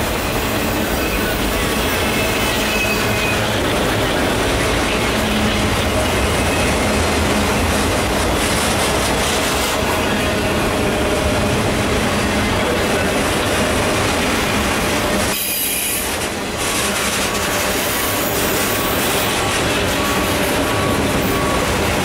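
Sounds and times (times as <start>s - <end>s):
steel wheels running on rail: 0.0s - 22.0s.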